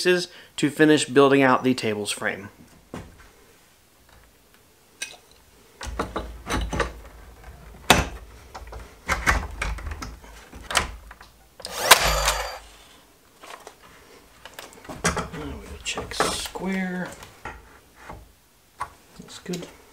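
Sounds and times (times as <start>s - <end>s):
cordless nailer firing: 11.6s - 12.7s.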